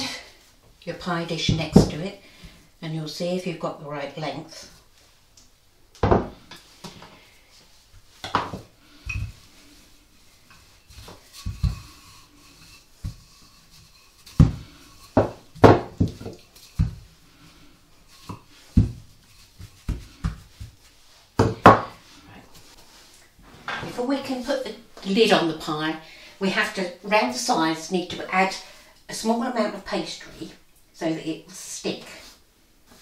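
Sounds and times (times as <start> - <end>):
rolling pin and knife clattering: 10.6 - 17.1.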